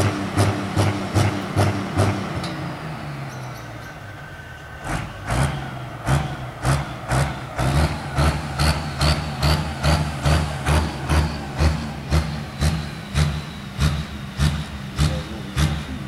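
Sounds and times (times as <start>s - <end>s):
tractor engine pulsing: 0.0s - 16.0s.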